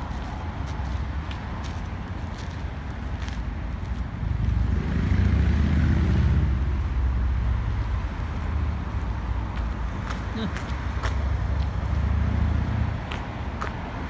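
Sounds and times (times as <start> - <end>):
vehicle driving past: 4.2 - 8.9, 11.2 - 13.2.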